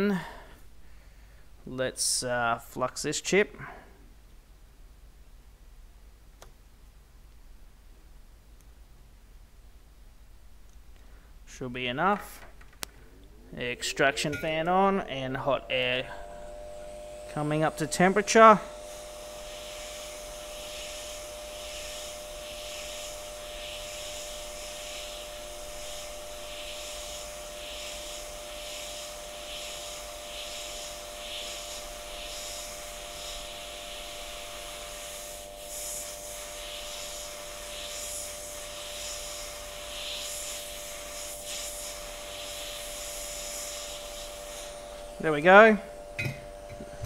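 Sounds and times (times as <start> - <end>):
extraction fan hum: 8.6 - 27.6, 41.4 - 47.0
hot air blowing hiss: 10.9 - 47.0.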